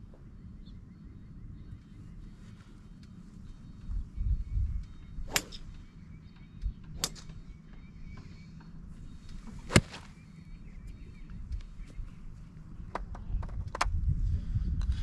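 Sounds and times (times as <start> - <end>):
golf club striking ball: 5.2 - 6.0, 6.9 - 7.5, 9.5 - 10.2.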